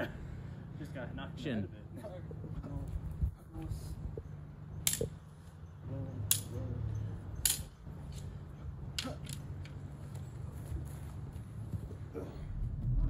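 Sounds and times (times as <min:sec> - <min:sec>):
prop swords clacking: 0:04.8 - 0:05.2, 0:06.2 - 0:06.6, 0:07.4 - 0:08.3, 0:08.9 - 0:09.8.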